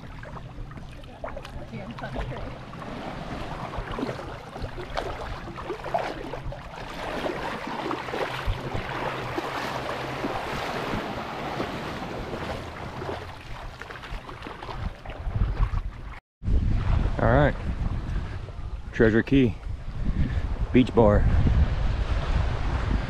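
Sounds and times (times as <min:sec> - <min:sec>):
small waves lapping: 0:00.0 - 0:16.2
water splashing around wading legs: 0:00.0 - 0:16.2
wind buffeting microphone: 0:00.0 - 0:23.0.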